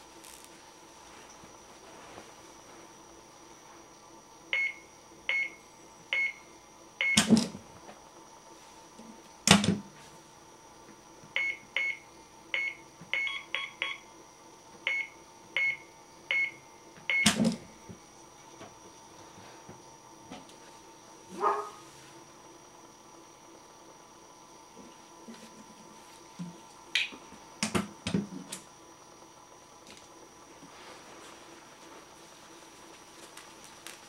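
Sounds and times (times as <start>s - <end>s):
keypad electronic beeps: 12.6s - 14.0s.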